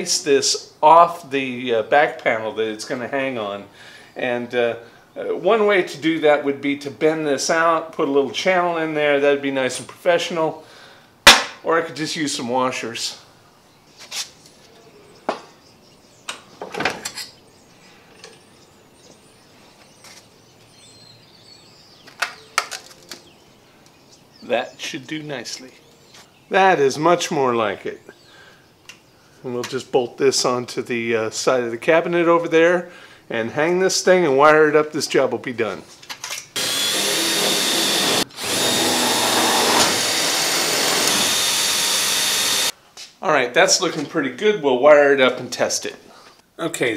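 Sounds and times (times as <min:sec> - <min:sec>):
cordless drill running: 0:36.6 - 0:42.8.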